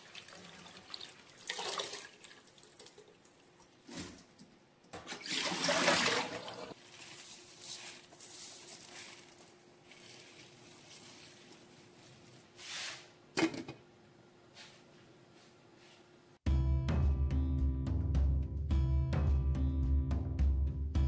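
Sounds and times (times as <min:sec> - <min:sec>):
water pouring into sink: 0:00.0 - 0:03.5, 0:05.1 - 0:07.2.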